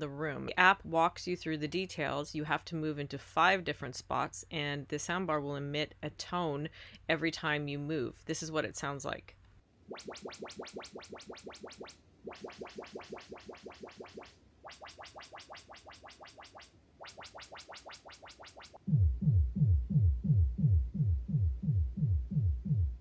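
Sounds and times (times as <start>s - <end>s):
rapid crisp ticks: 10.0s - 18.8s.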